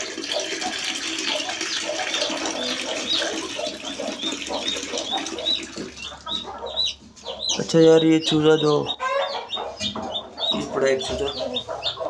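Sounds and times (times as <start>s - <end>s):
water pouring from a hose: 0.0s - 6.0s
chicks cheeping: 0.3s - 12.0s.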